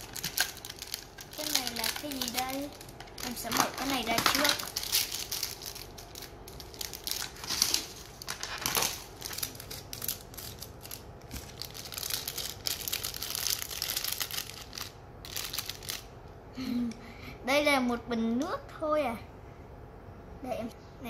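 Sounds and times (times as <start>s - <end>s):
plastic wrapper crinkling: 0.0s - 16.1s.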